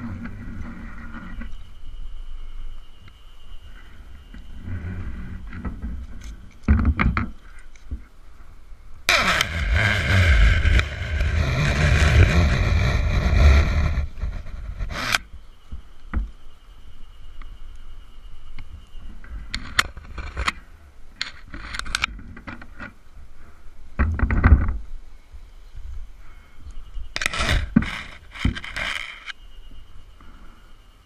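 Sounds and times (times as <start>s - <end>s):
rope rasping against trunk: 9.1s - 15.2s.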